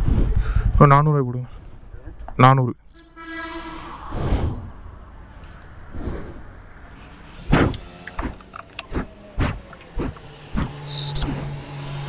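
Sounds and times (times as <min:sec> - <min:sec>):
fuel cap and nozzle clicks: 0:07.7 - 0:10.3.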